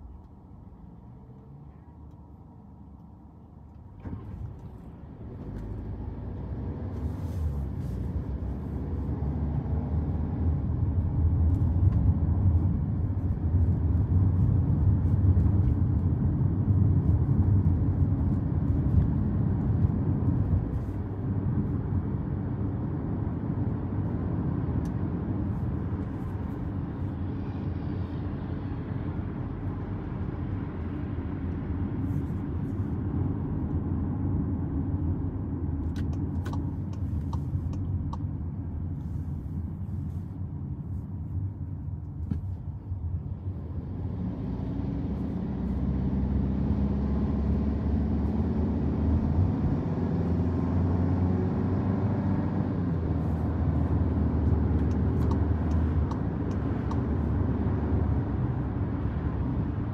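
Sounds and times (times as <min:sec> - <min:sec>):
car road and engine noise: 0:00.0 - 0:59.9.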